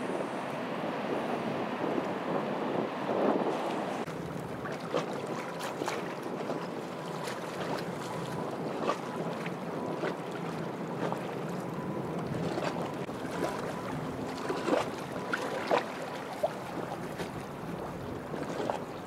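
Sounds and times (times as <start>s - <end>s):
small waves lapping and splashing: 0.0s - 19.0s.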